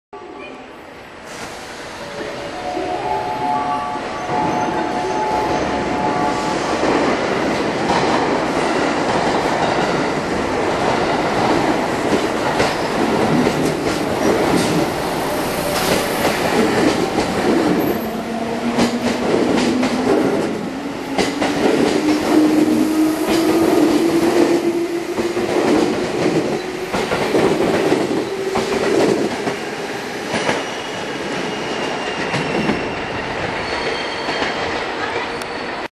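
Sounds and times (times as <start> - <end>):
train wheels clattering: 6.8 - 15.0.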